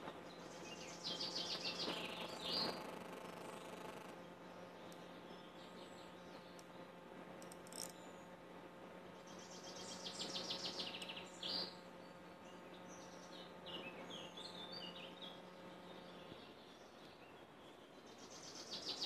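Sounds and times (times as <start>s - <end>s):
faint steady hum: 0.0s - 19.0s.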